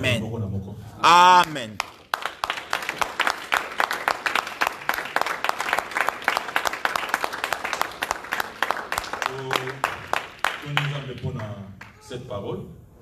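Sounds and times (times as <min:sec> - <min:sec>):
person saying amen: 0:01.0 - 0:01.8
congregation applauding: 0:01.1 - 0:12.1.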